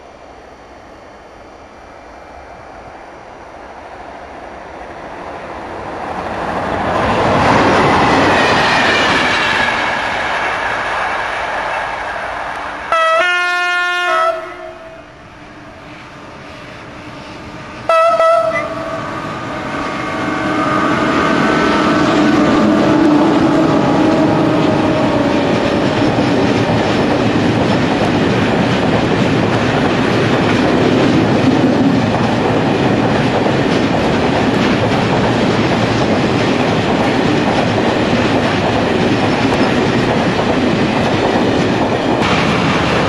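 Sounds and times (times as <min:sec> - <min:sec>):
rushing rail noise: 0:00.0 - 0:43.0
train wagons rumbling and clattering: 0:03.6 - 0:12.9, 0:14.3 - 0:43.0
locomotive horn blasts: 0:12.9 - 0:15.2, 0:17.9 - 0:22.8.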